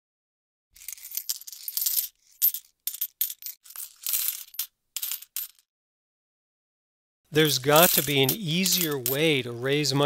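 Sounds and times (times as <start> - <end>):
coins rattling in glass jar: 0.8 - 5.6, 7.4 - 9.3.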